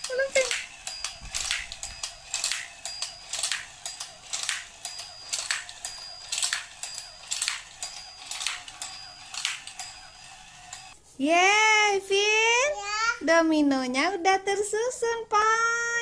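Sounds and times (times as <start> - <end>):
toy train plastic clicks: 0.0 - 11.0.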